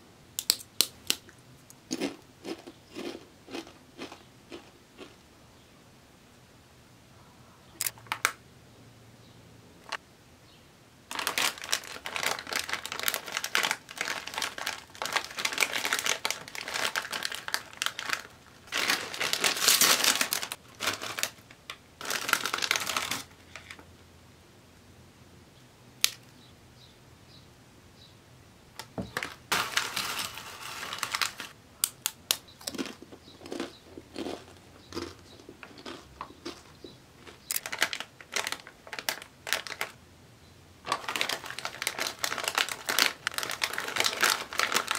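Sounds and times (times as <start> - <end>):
foil bag crinkling: 11.1 - 23.8, 29.0 - 31.6, 32.8 - 40.0, 40.8 - 44.9
chips clicking into bowl: 28.8 - 36.6.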